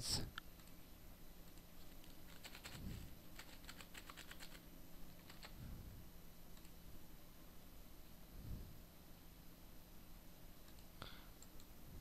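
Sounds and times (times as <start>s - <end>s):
typing on a keyboard: 1.5s - 2.8s, 3.4s - 4.6s, 5.2s - 5.6s.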